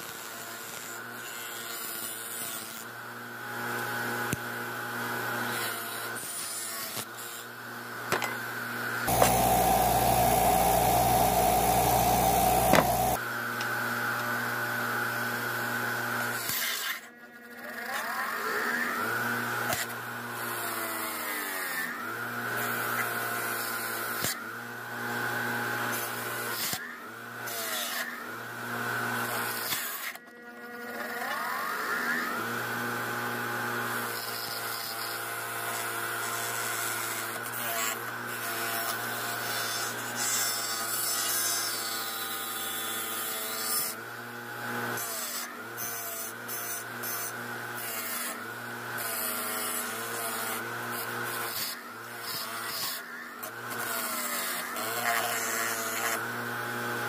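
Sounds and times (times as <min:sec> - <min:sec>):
bench grinder motor running: 0:08.0 - 0:13.2.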